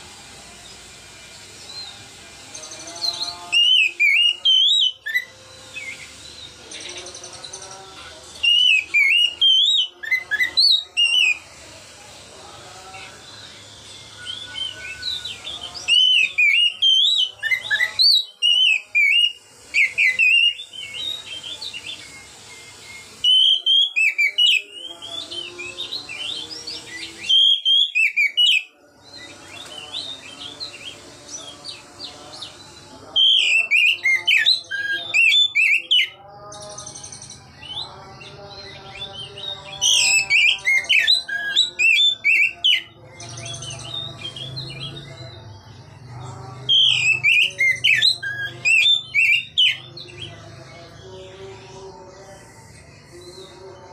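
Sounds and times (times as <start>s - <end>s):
bird singing whistled notes: 2.5s - 7.6s, 8.4s - 11.4s, 13.3s - 31.7s, 32.4s - 36.2s, 36.8s - 45.7s, 46.7s - 50.3s.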